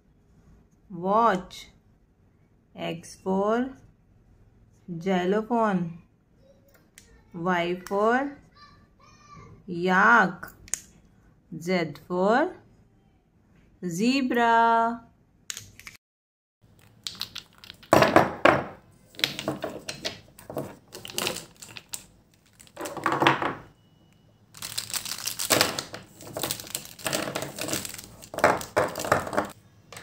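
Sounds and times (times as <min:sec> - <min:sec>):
plastic jars and pens clattering: 0:16.7 - 0:23.7, 0:24.6 - 0:30.0.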